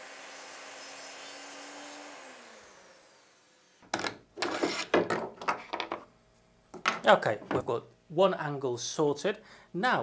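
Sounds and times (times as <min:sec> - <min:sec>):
mitre saw motor whine: 0:00.0 - 0:03.8.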